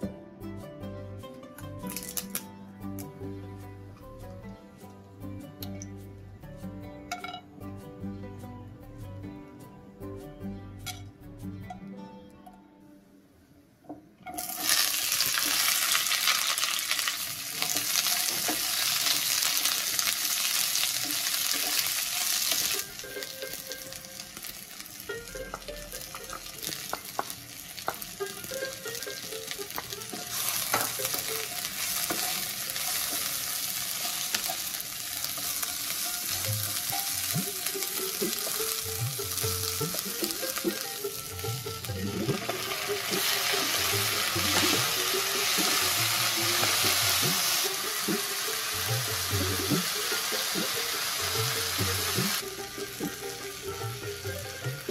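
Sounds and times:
onions sizzling in hot oil: 14.4 - 54.9.

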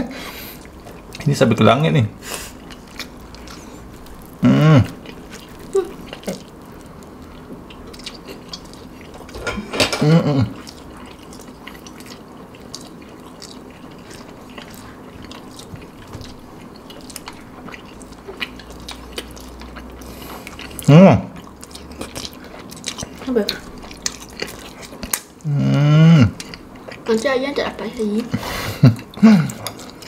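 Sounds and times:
short vocal sounds: 4.4 - 4.9, 25.5 - 26.3.

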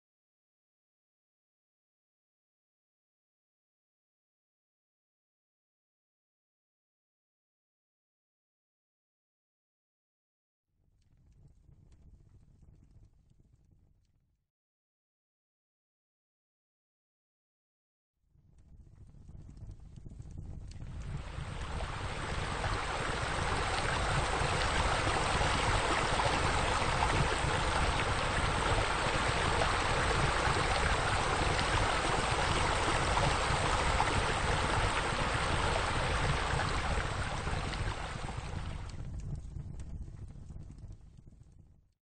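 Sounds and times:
fountain water splashing: 21.1 - 38.9.

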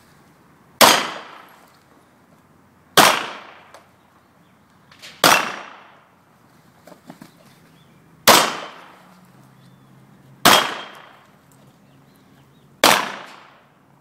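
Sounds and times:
pistol shots with echo: 0.8 - 1.6, 3.0 - 3.7, 5.2 - 6.0, 8.3 - 8.9, 10.4 - 11.2, 12.8 - 13.6.

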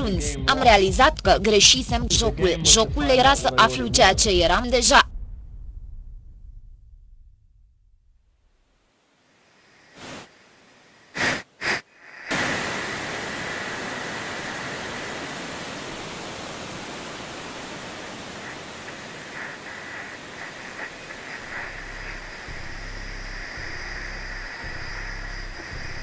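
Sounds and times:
high steady whine: 4.6 - 26.0
television static hiss: 8.8 - 26.0.

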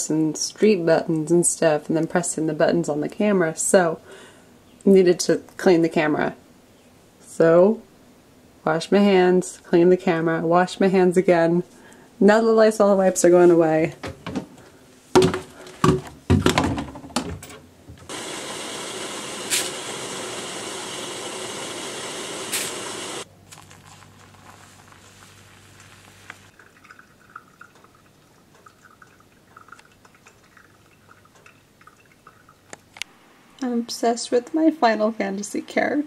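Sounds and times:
knocks and clatters: 15.2 - 18.1
water running: 18.1 - 32.7
dripping from coffee grounds: 22.4 - 33.1.

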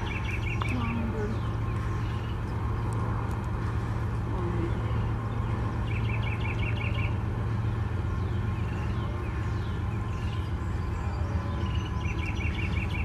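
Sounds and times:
bird trill: 0.0 - 2.8, 5.4 - 7.3, 8.2 - 13.0
low engine drone: 0.0 - 13.0.

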